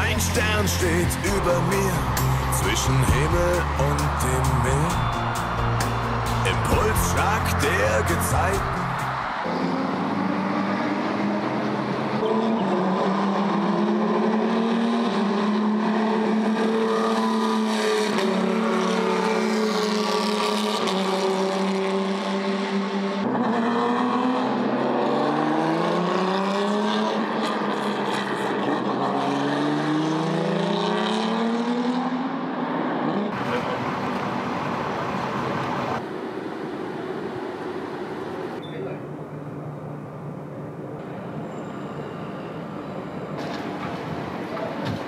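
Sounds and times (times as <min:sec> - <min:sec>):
vehicle engine revving: 0:00.0 - 0:36.0.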